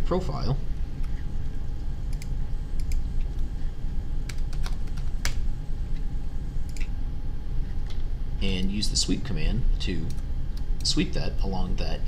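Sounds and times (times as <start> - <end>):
steady low hum: 0.0 - 12.0
keyboard and mouse clicks: 4.3 - 5.4.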